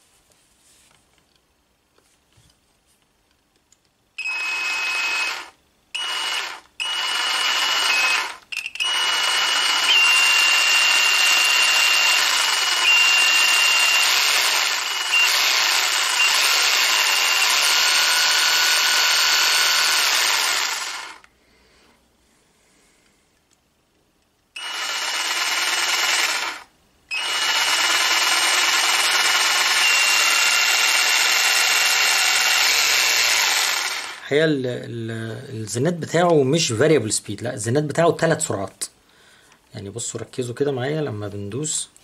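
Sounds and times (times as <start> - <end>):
jigsaw motor whining: 4.2 - 21.3, 24.6 - 34.2.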